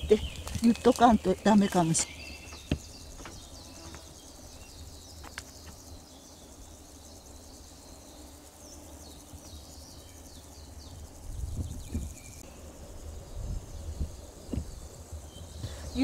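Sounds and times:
birds chirping: 0.0 - 12.6, 13.3 - 16.0.

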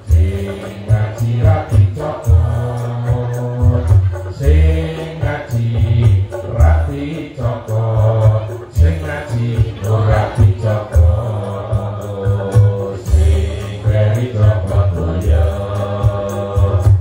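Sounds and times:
deep bass notes: 0.0 - 17.0
voices singing: 0.0 - 17.0.

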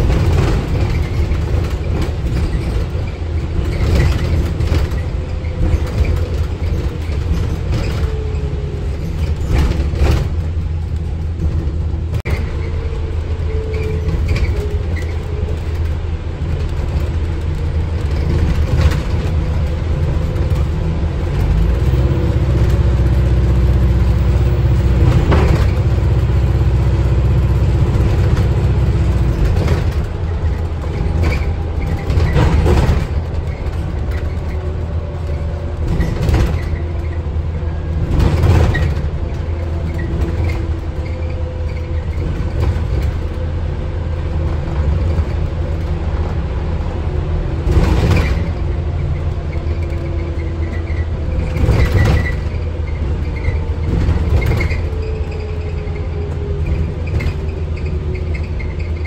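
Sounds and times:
bus interior rumble: 0.0 - 59.0
knocks from bus body: 27.9 - 37.0.

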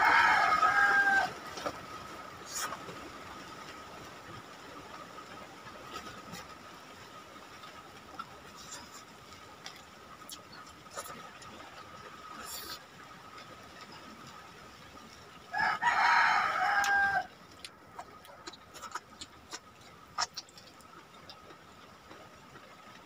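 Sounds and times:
rooster crowing: 0.0 - 1.4, 15.5 - 17.3
soft clicks of eating by hand: 16.8 - 22.3.

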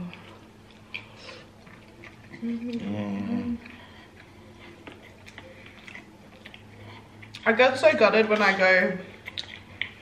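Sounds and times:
person humming with mouth full: 2.4 - 3.8
chewing mouth clicks: 3.6 - 7.5, 9.2 - 10.0.

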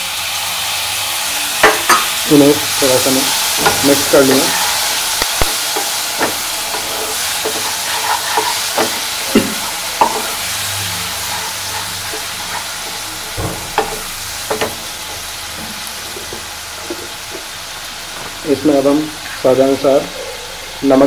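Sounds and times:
tomatoes sizzling in oil: 0.0 - 21.0
wooden spatula scraping a pan: 3.2 - 18.4.

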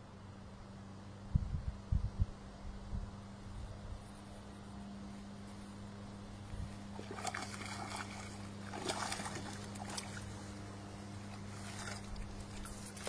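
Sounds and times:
steady low hum: 0.0 - 13.0
fish thrashing and splashing: 6.8 - 13.0.

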